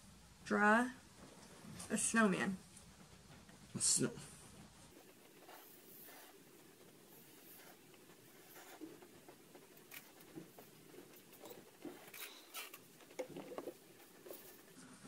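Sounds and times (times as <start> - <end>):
marker scratching on paper: 4.9 - 14.8.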